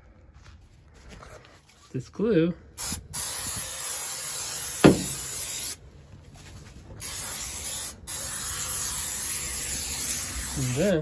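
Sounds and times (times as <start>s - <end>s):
aerosol can spraying: 2.8s - 5.8s, 7.0s - 11.0s
sharp knock: 4.8s - 5.2s.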